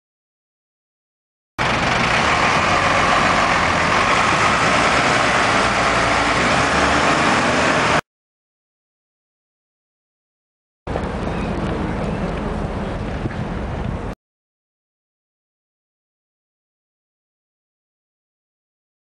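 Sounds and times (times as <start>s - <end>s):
bus diesel engine rumble: 1.6s - 8.0s, 10.9s - 14.2s
street traffic noise: 1.6s - 8.0s, 10.9s - 14.2s.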